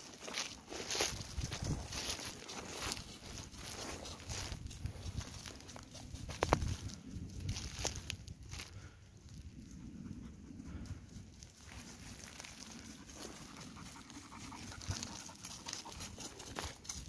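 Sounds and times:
steps crunching on twigs: 0:00.0 - 0:09.4, 0:11.4 - 0:17.0
low rumble: 0:03.3 - 0:13.4
dog panting: 0:12.6 - 0:16.8.

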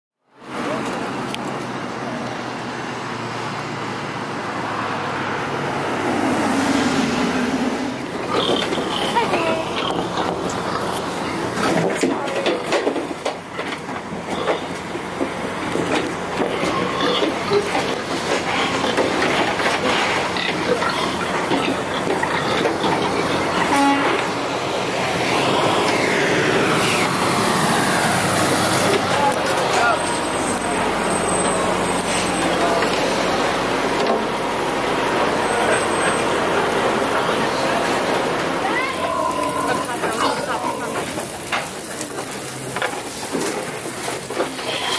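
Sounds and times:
road traffic noise: 0:00.2 - 0:44.9
car passing close by: 0:02.2 - 0:08.9, 0:23.8 - 0:38.6
pigs grunting and squealing: 0:08.2 - 0:11.0, 0:16.4 - 0:23.8.

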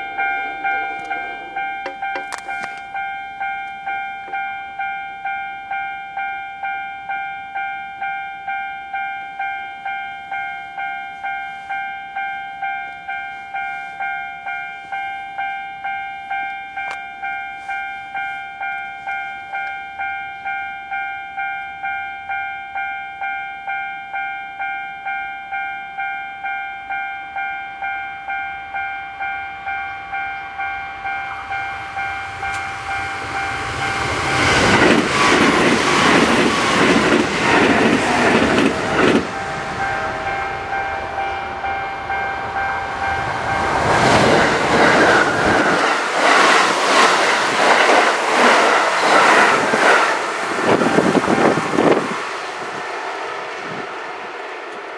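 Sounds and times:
electric train running: 0:00.0 - 0:06.4, 0:28.3 - 0:54.9
level crossing warning bell: 0:00.0 - 0:54.9.

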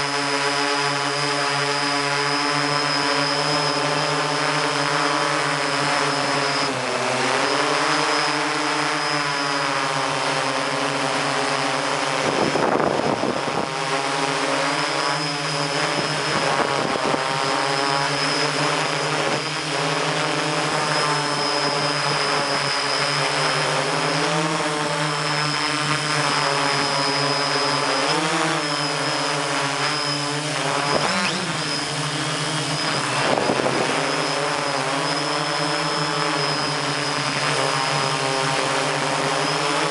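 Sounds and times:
drone motors and propellers whining: 0:00.0 - 0:39.9
wind rushing over microphone: 0:12.2 - 0:14.0, 0:15.3 - 0:17.6, 0:30.6 - 0:35.9.

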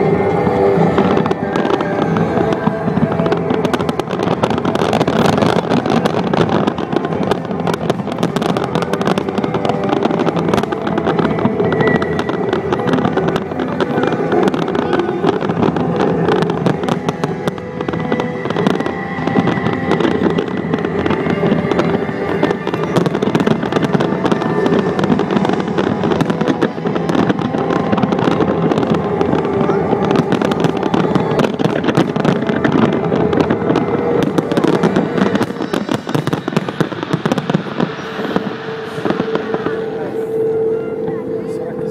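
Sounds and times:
fireworks bursting and crackling: 0:00.0 - 0:41.9.

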